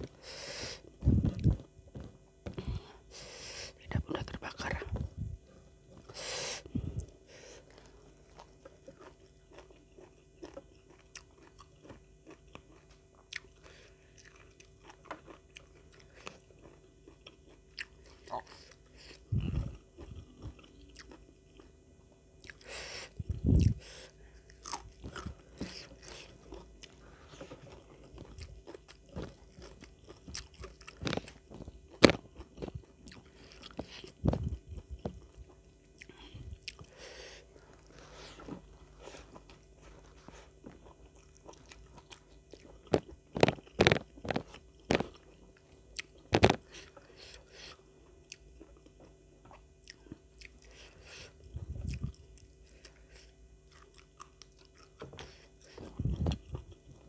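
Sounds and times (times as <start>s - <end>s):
wet chewing: 7.0s - 21.7s, 23.3s - 45.4s
crunchy bites of vegetables: 24.5s - 37.0s, 40.3s - 51.2s.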